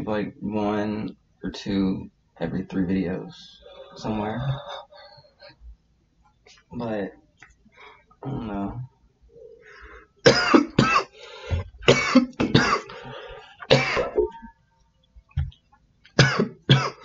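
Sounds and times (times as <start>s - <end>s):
man coughing: 10.2s - 11.1s, 11.8s - 13.0s, 13.7s - 14.3s, 16.2s - 17.0s.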